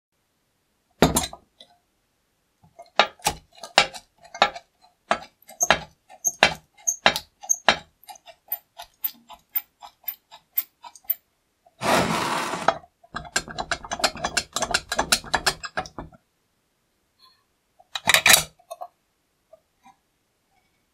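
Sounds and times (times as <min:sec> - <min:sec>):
metal scrape: 0:11.8 - 0:12.8.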